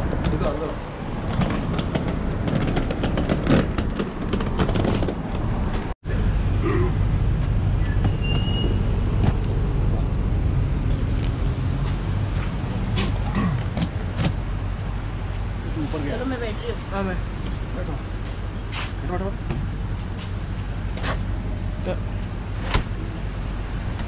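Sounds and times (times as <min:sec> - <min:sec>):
street traffic: 0:00.0 - 0:24.0.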